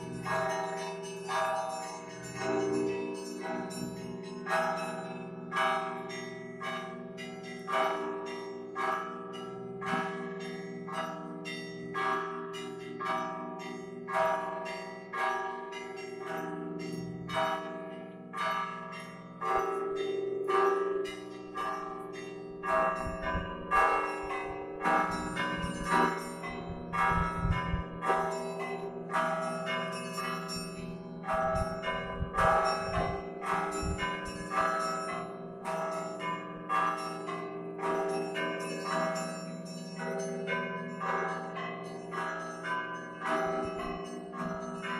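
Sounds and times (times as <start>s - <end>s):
hum of large bells: 0.0s - 44.9s
small church bells striking: 0.0s - 44.9s.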